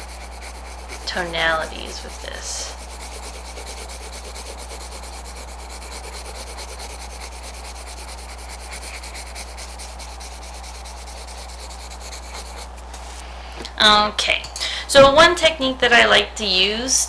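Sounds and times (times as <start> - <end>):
pencil scratching on paper: 0.0 - 13.2.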